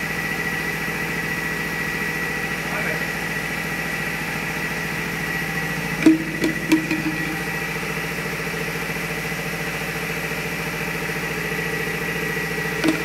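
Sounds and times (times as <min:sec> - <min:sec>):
thin high machine whine: 0:05.3 - 0:08.3, 0:12.8 - 0:13.0.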